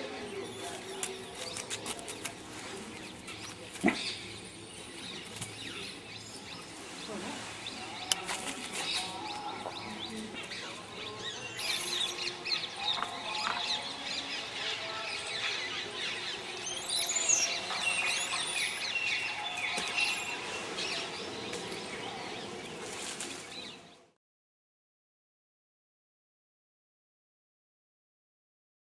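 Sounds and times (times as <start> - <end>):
birds chirping and calling: 0.0 - 24.0.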